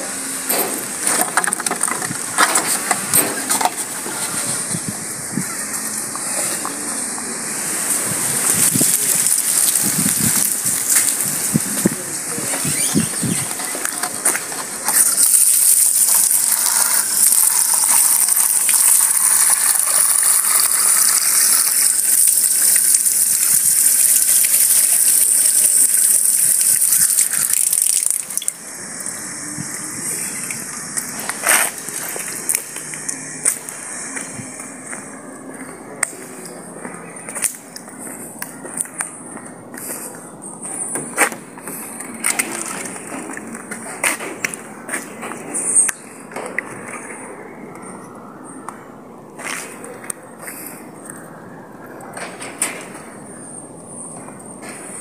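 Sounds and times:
water gushing into plastic bottle: 8.3s - 11.9s, 14.9s - 28.6s.

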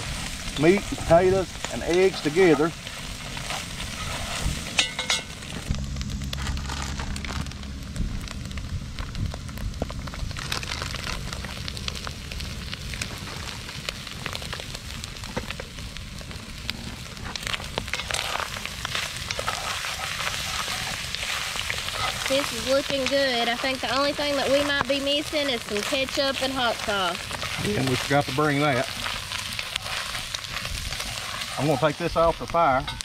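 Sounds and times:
food sizzling in a pot: 0.0s - 33.0s
wooden spoon stirring food: 17.6s - 32.5s.

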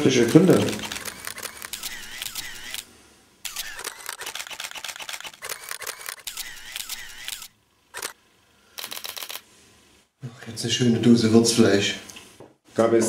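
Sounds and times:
camera shutter clicks: 0.2s - 8.2s, 8.8s - 9.4s.

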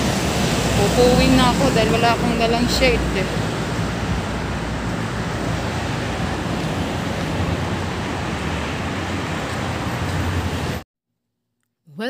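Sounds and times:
cars passing: 0.0s - 10.8s.

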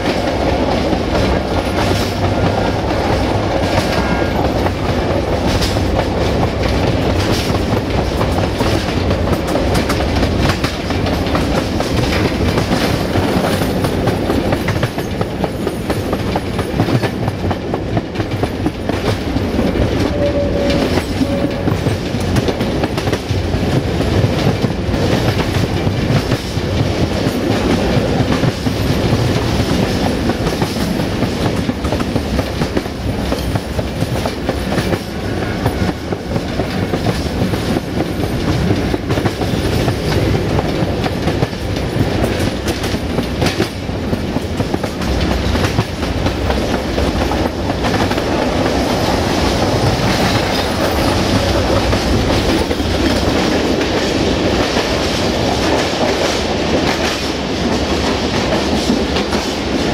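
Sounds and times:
clickety-clack over rail joints: 0.0s - 59.9s
train wheels rumbling on rails: 0.0s - 59.9s.

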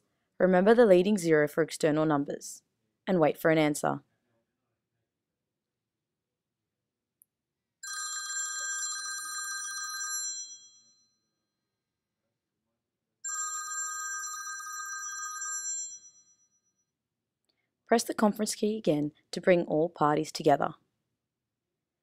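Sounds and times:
trilling phone ringtone: 7.8s - 11.2s, 13.2s - 16.7s.

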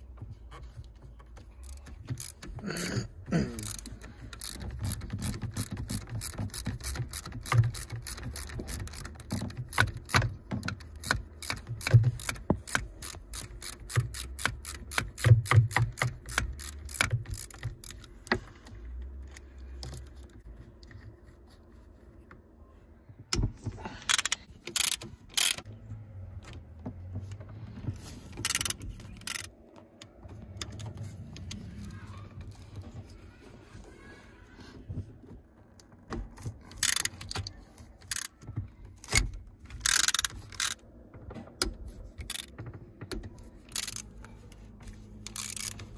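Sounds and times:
ratchet wrench clicking: 1.6s - 2.9s, 3.6s - 18.3s, 24.0s - 25.7s, 28.4s - 29.5s, 36.7s - 37.4s, 38.0s - 38.3s, 39.0s - 40.8s, 42.2s - 42.5s, 43.6s - 44.1s, 45.2s - 45.9s.

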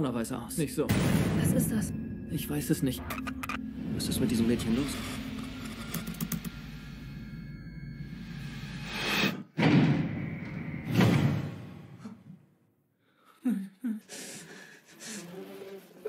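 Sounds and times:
heavy booming impacts: 0.9s - 2.8s.

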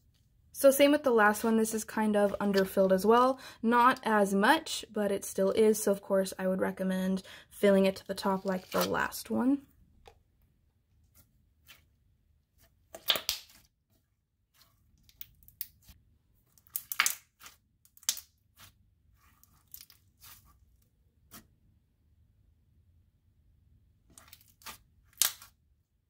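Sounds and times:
slime popping and crackling: 16.6s - 18.7s, 24.2s - 25.5s.

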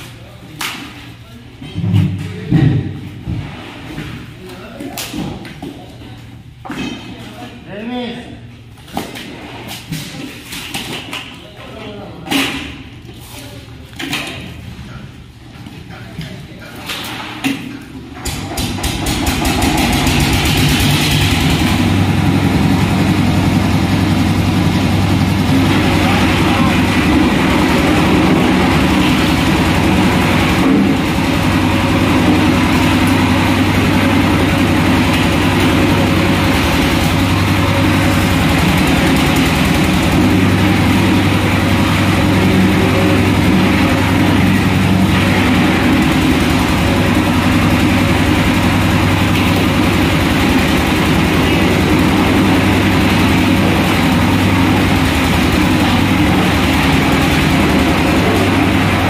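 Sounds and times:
engine running steadily: 17.9s - 59.0s.

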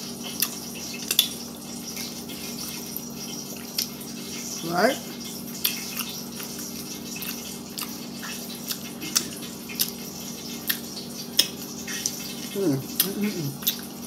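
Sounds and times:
person eating and licking fingers: 5.6s - 14.0s.

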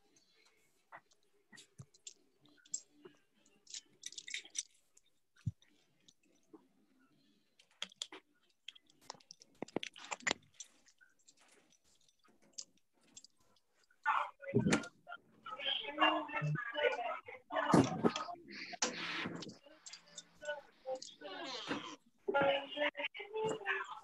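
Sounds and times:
phones clicking and rustling: 7.6s - 13.4s.

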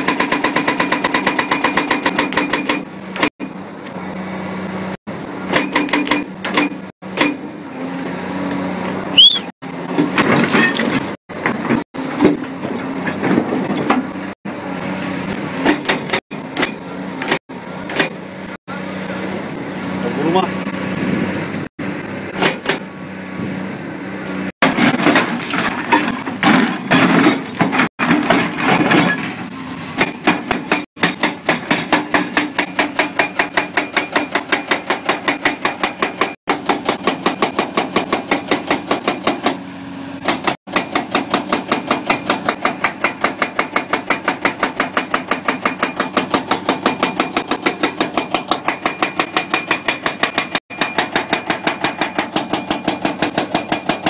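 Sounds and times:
hydraulic breaker hammering: 30.0s - 54.0s.

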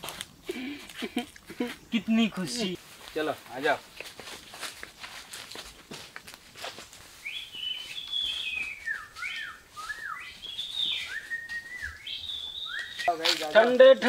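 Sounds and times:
bird singing whistled notes: 7.2s - 13.4s.

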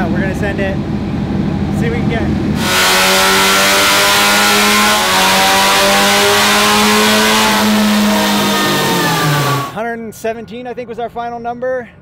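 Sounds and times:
supercharged engine at full throttle: 2.6s - 9.8s.

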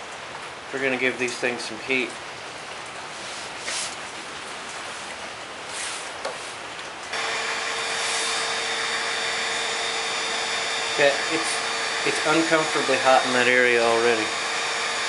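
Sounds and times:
heat gun fan whine: 7.1s - 15.0s.

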